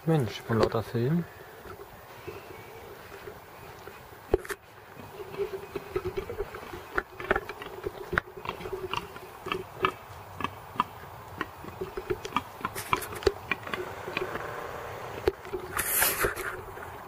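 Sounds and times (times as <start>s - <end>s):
wild boar grunting: 1.2s - 17.0s.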